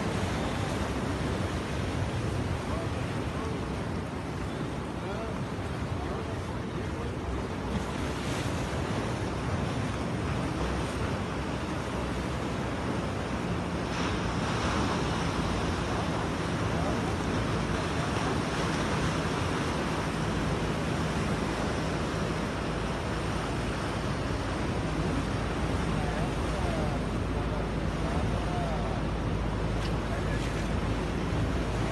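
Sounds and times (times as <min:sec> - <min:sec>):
surf breaking against rocks: 0:07.6 - 0:31.9.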